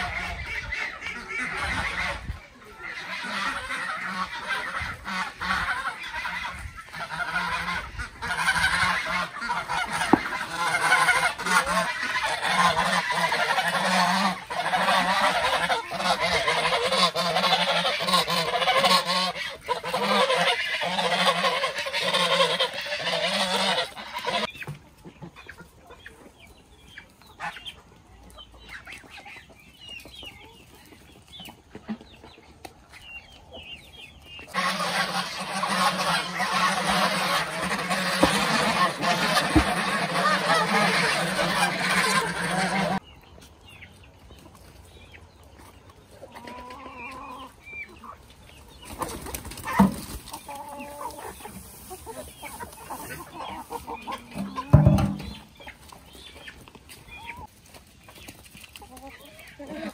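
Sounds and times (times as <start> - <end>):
geese honking: 0.0 - 26.0, 34.3 - 43.0, 49.5 - 57.5
chickens clucking: 0.0 - 59.9.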